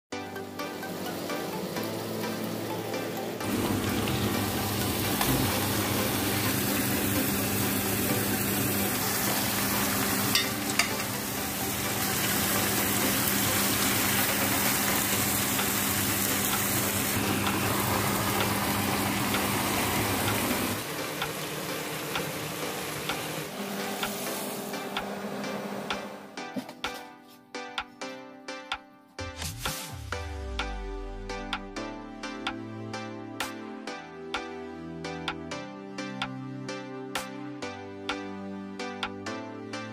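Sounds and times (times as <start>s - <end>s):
meat sizzling in a pot: 3.4s - 24.6s.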